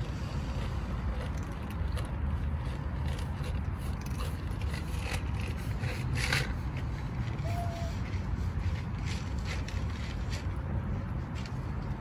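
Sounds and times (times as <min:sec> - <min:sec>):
cats crunching dry food: 0:00.0 - 0:07.1.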